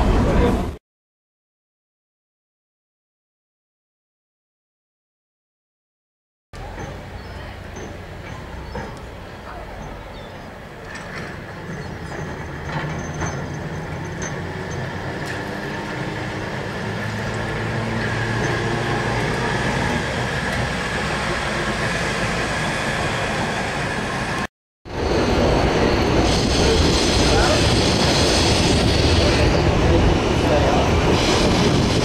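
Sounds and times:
rushing tram running noise: 0:00.0 - 0:00.8, 0:06.6 - 0:32.0
electric tram passing: 0:06.6 - 0:32.0.

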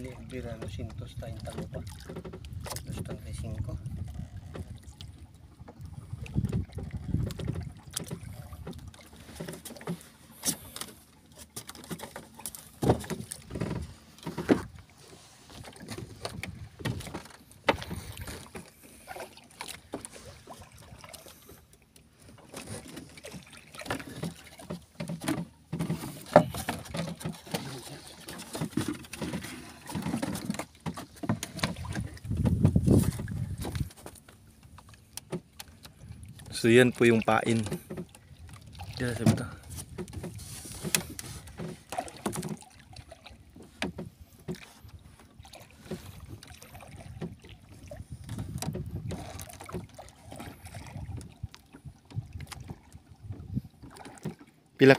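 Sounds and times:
water sloshing against boat hull: 0:00.0 - 0:54.9
fishing gear knocking on boat: 0:11.6 - 0:14.8, 0:15.8 - 0:18.7, 0:23.9 - 0:27.7, 0:28.4 - 0:34.1, 0:45.8 - 0:51.4.

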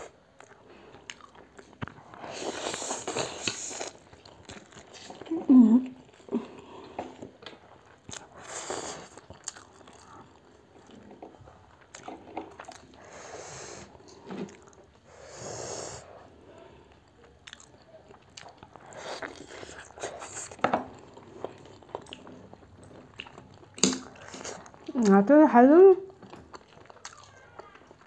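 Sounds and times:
wet chewing: 0:00.0 - 0:15.1, 0:16.2 - 0:25.2, 0:26.1 - 0:28.0
people slurping noodles: 0:02.0 - 0:04.0.

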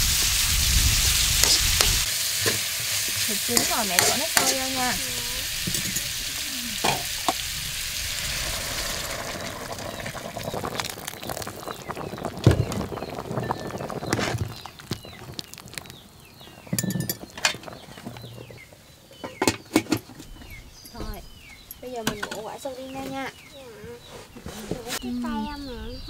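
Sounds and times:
food sizzling in a pan: 0:00.0 - 0:16.1
kitchen utensils clinking: 0:01.4 - 0:07.4, 0:16.7 - 0:17.7, 0:20.9 - 0:22.6
small birds chirping: 0:02.8 - 0:26.0.

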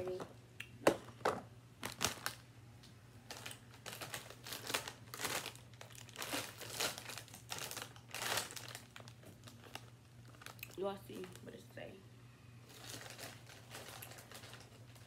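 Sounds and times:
foil chip bag crinkling: 0:01.8 - 0:02.4, 0:03.2 - 0:11.7, 0:12.7 - 0:15.0.

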